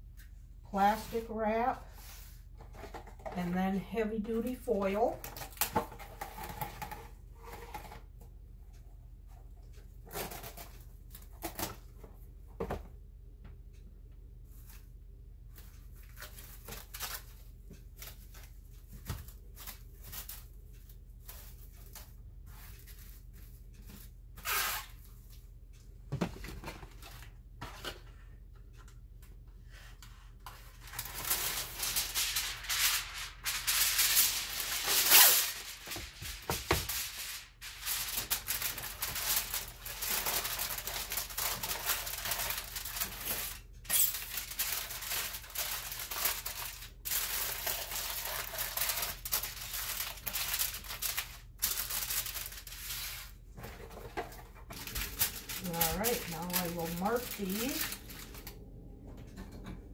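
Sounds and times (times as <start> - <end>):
aluminium foil crackling: 15.6 - 25.4, 30.4 - 58.6
plastic wrap rustling: 15.6 - 25.4, 30.5 - 58.6.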